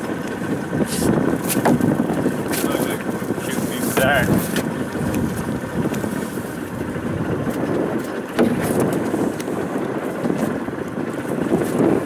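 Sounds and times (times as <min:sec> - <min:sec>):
water lapping around boat: 0:00.0 - 0:12.0
wind on microphone: 0:00.0 - 0:12.0
pole knocking: 0:08.3 - 0:09.1.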